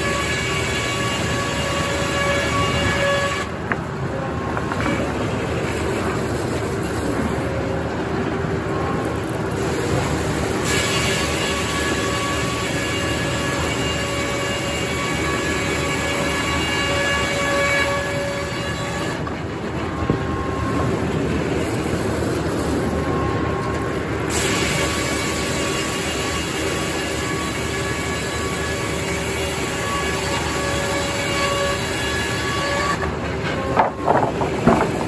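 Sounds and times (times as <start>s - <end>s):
circular saw whine: 0.0s - 35.0s
mechanical rumble: 33.0s - 35.0s.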